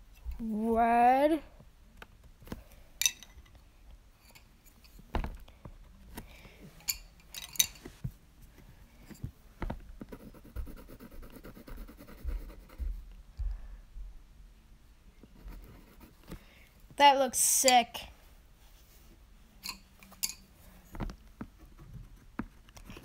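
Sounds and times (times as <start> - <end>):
pencil scratching on paper: 10.0 - 13.0, 15.3 - 16.3.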